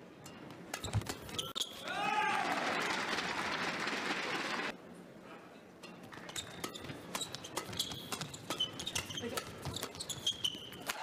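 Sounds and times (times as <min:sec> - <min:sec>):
rackets hitting shuttlecock: 0:00.2 - 0:01.9, 0:05.9 - 0:11.0
shoes squeaking on court floor: 0:00.7 - 0:01.8, 0:06.1 - 0:11.0
crowd applause: 0:02.3 - 0:04.7.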